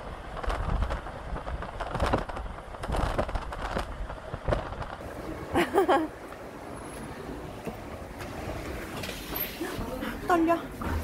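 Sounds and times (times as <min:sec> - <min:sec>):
wind buffeting a microphone: 0:00.0 - 0:05.1.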